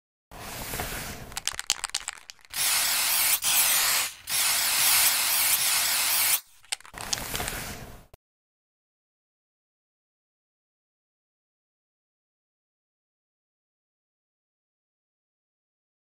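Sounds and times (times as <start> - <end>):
spray can hissing: 0.9 - 7.8
spray can rattling: 1.3 - 7.7.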